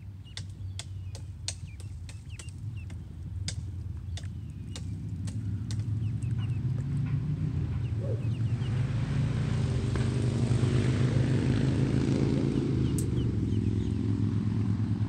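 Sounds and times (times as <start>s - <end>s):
ducklings peeping: 0.0s - 8.9s, 12.4s - 14.0s
low engine hum: 0.0s - 15.0s.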